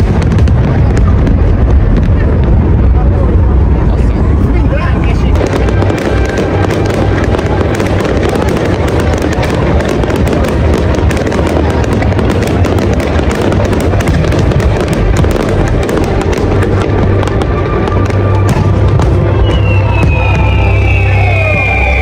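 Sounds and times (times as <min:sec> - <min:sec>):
fireworks bangs and crackling: 0:00.0 - 0:22.0
music playing: 0:04.4 - 0:22.0.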